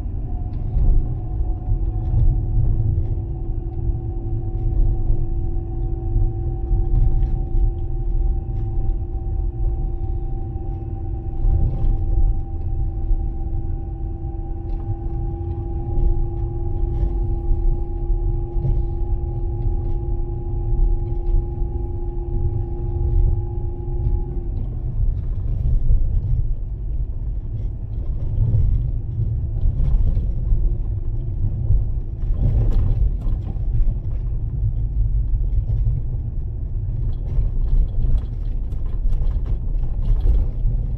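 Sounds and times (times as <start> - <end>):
engine and tyres rumbling: 0.0 - 40.9.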